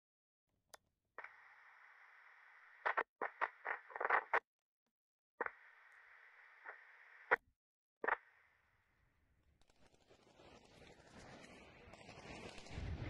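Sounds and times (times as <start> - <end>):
radio-like static hiss: 1.2 - 4.4
sharp crackles: 9.6 - 13.0.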